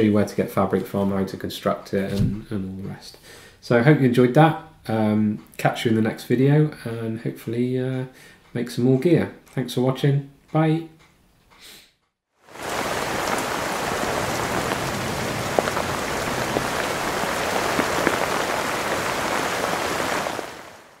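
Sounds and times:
steady rain patter: 12.4 - 21.0.

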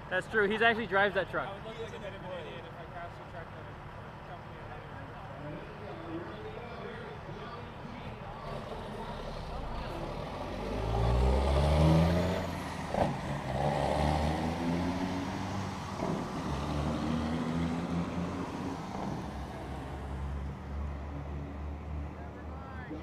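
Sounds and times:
diesel truck engine accelerating: 7.1 - 23.0.

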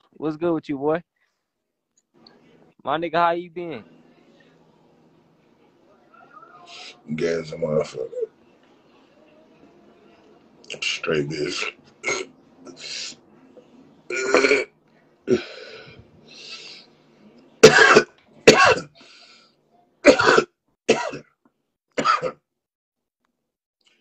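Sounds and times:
man coughing: 17.6 - 18.9, 20.0 - 21.3, 22.0 - 22.4.

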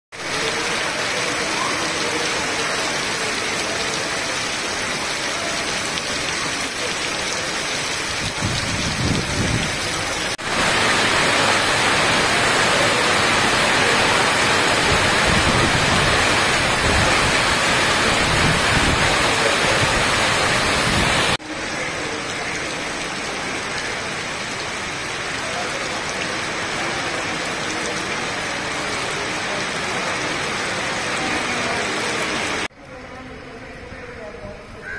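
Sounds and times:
heavy rain: 0.1 - 34.9
low rumbling gusts: 8.2 - 10.8.

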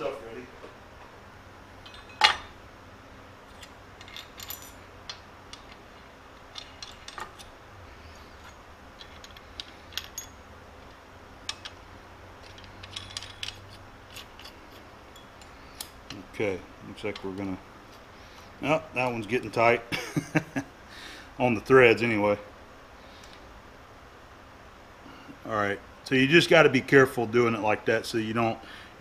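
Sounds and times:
small metallic clinks and ticks: 8.4 - 10.5, 11.4 - 11.8, 12.4 - 16.2.

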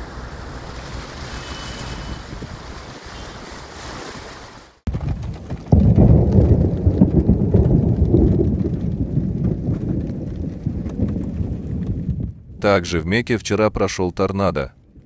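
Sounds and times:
wind buffeting microphone: 0.0 - 13.4, 14.5 - 15.0.

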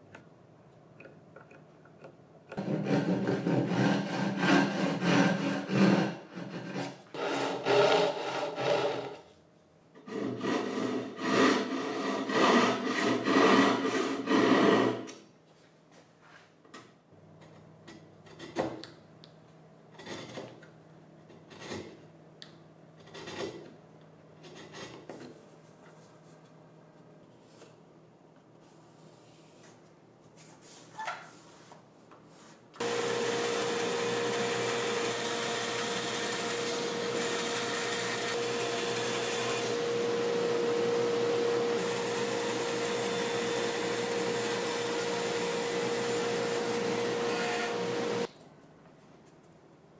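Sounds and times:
hand saw cutting wood: 2.6 - 9.2, 10.0 - 15.1, 32.8 - 40.0
band saw humming: 32.8 - 48.3.

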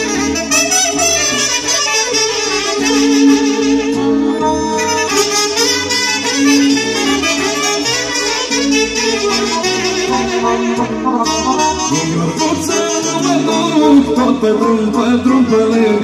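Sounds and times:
bass line: 0.0 - 16.0
clarinets and saxophone melody: 0.0 - 16.0.

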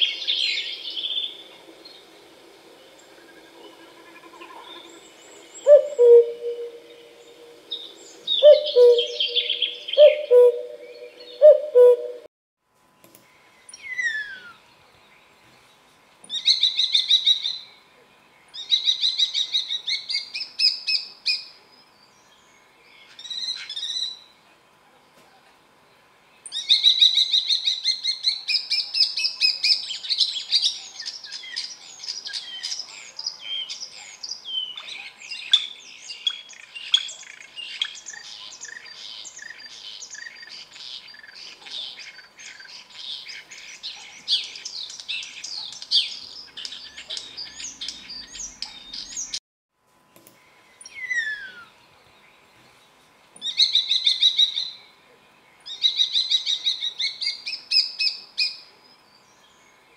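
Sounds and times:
starling singing: 8.4 - 12.2.

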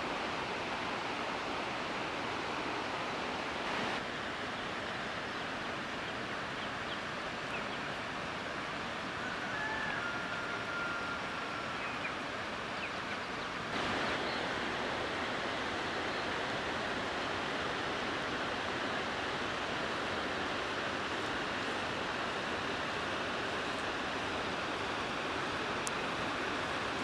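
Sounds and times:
steady rushing outdoor noise: 0.0 - 27.0.

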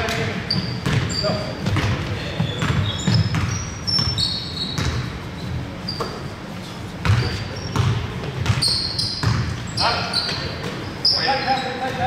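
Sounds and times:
basketball bouncing on hard court: 0.0 - 5.1, 7.0 - 9.6
sneakers squeaking on floor: 0.0 - 12.0.

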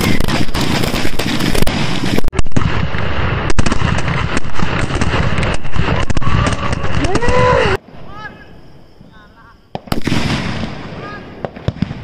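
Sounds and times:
firecrackers banging: 0.0 - 8.1, 9.0 - 12.0.

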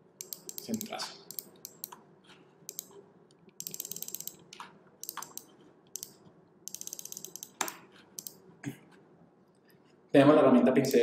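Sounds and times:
computer mouse clicking: 0.2 - 2.0, 2.7 - 8.4.

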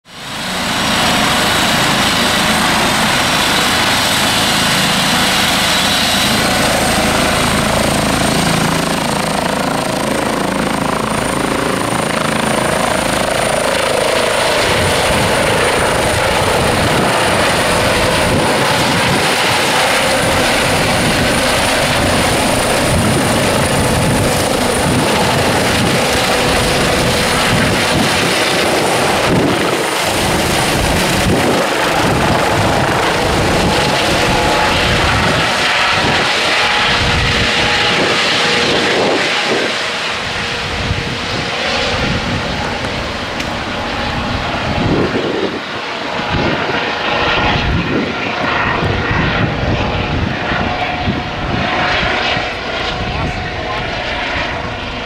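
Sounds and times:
helicopter engines and rotors: 0.0 - 55.0
high turbine whine: 0.1 - 55.0.

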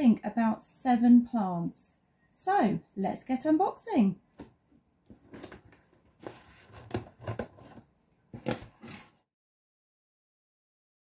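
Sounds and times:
cardboard handling: 4.4 - 9.3
packing tape tearing: 5.1 - 7.8.

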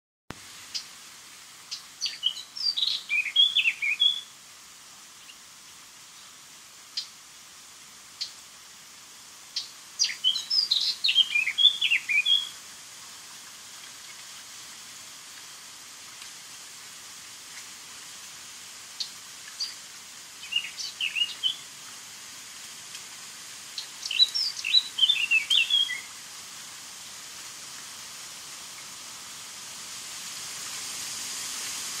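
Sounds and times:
steady hiss: 0.3 - 32.0
songbird singing: 1.7 - 4.3, 6.1 - 7.2, 8.2 - 8.5, 9.5 - 12.6, 18.9 - 21.8, 23.7 - 26.2.

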